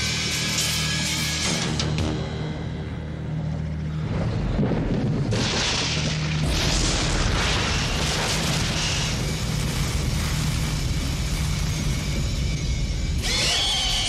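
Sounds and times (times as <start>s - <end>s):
low droning music: 0.0s - 14.0s
low rumbling boom: 3.9s - 13.2s
crackling sizzling blast: 4.1s - 14.0s.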